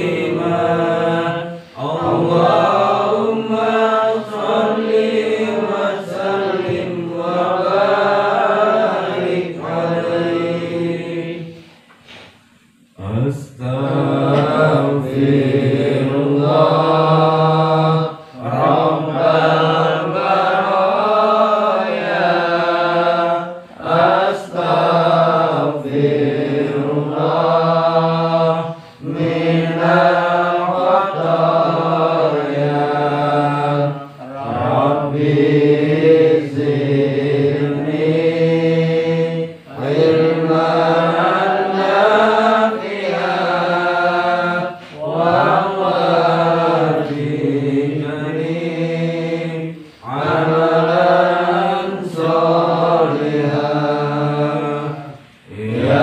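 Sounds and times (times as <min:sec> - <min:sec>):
person chanting melodically: 0:00.0 - 0:11.7, 0:13.0 - 0:56.0.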